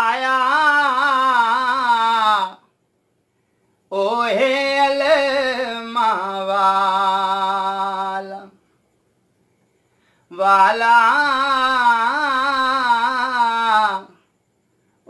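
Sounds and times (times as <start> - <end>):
man singing unaccompanied: 0.0 - 2.8, 3.9 - 8.6, 10.3 - 14.3.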